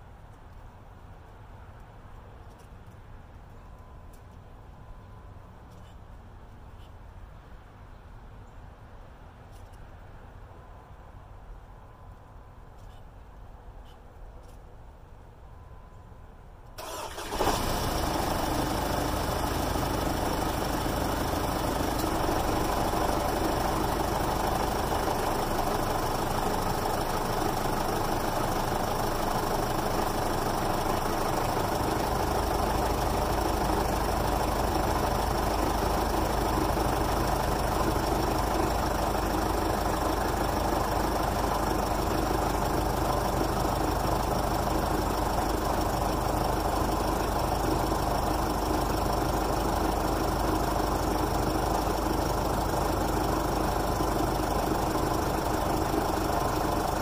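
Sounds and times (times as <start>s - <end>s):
diesel engine starting and idling: 16.8s - 57.0s.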